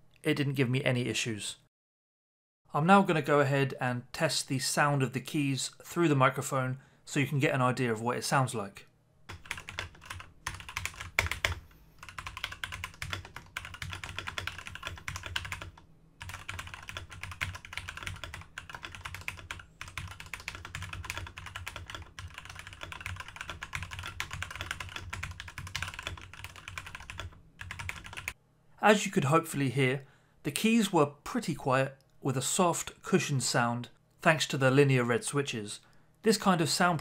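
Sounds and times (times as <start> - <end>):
soft mechanical keyboard typing: 9.3 - 28.4.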